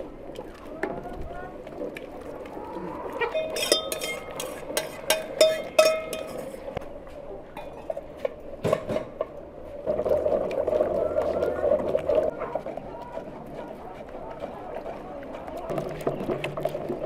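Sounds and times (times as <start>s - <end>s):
metal spoon clinking against pot: 3.4s - 6.6s.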